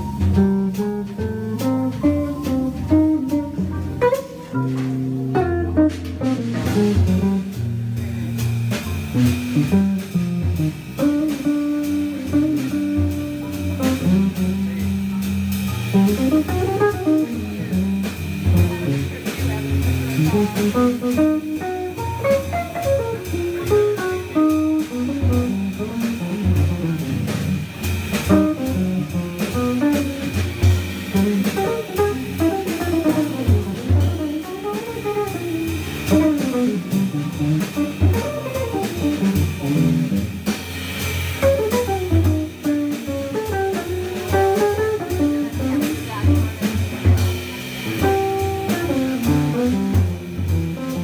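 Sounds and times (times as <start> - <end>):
drum kit with cymbals: 0.0 - 51.0
electric guitar melody: 0.0 - 51.0.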